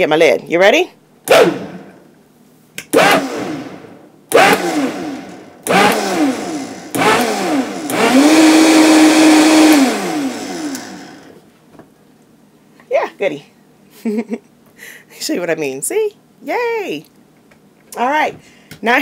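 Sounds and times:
blender pulsing: 0:03.0 - 0:11.4.

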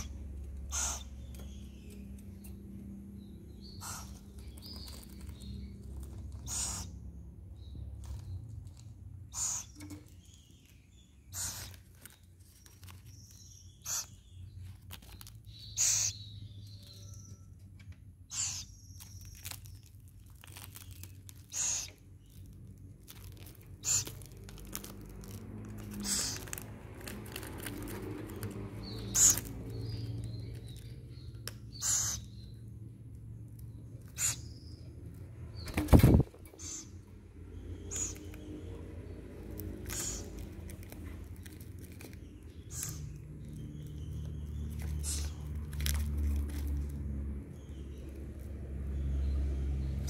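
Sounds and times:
owl chick hissy calls: 0:00.7 - 0:01.1, 0:03.8 - 0:04.2, 0:06.4 - 0:07.0, 0:09.3 - 0:09.9, 0:15.8 - 0:16.2, 0:18.3 - 0:18.7, 0:21.5 - 0:21.9, 0:31.8 - 0:32.3.

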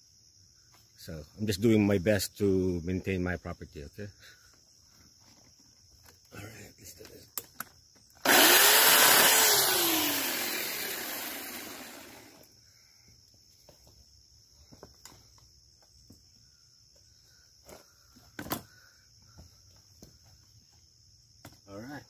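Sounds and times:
insects hissing: 0:00.0 - 0:22.0
electric chainsaw winding down: 0:08.2 - 0:12.5.

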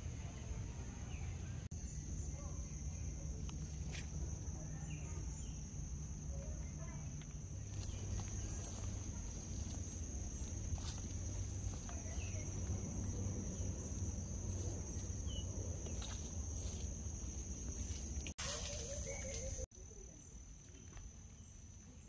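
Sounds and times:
faint footsteps on wet dirt: 0:06.5 - 0:19.7
low rumble: 0:07.0 - 0:18.3.

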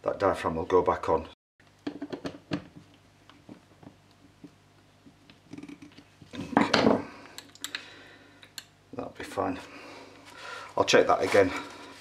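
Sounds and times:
scraping rustle: 0:10.9 - 0:12.0.

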